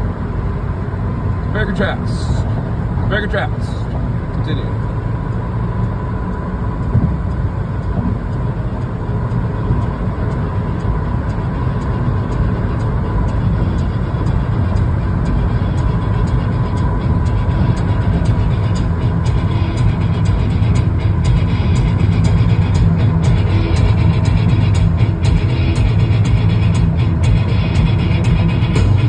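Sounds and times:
car road and engine rumble: 0.0s - 29.0s.

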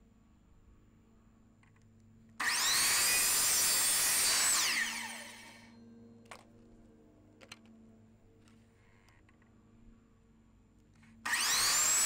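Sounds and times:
miter saw cutting and winding down: 2.4s - 5.8s, 11.2s - 12.0s.

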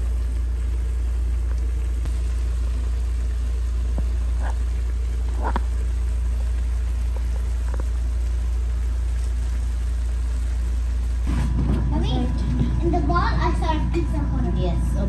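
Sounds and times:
broth simmering and bubbling: 0.0s - 15.0s
low hum: 0.0s - 15.0s.

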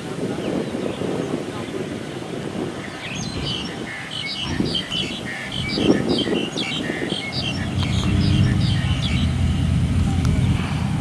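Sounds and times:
small birds chirping: 2.6s - 10.8s
distant harvester engine rumble: 2.8s - 11.0s.

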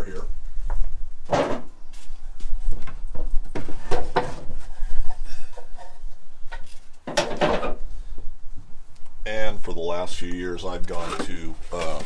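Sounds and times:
wooden boxes knocking and scraping: 1.2s - 1.7s, 2.7s - 7.8s, 10.9s - 12.0s.

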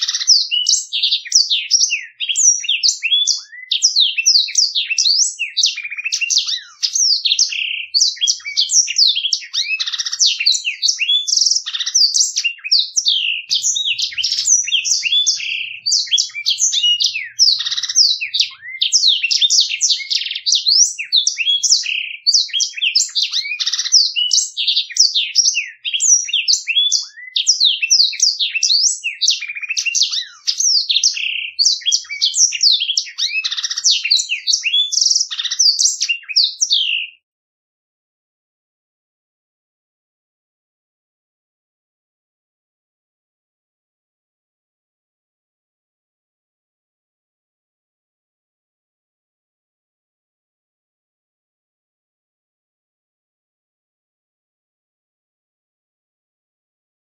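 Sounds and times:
bird singing twittering trills: 0.0s - 37.2s.

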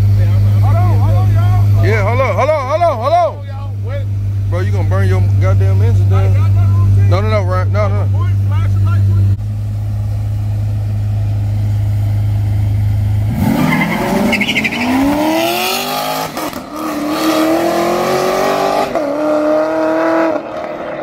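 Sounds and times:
car engines revving: 0.0s - 21.0s
tyres squealing: 13.6s - 15.3s.

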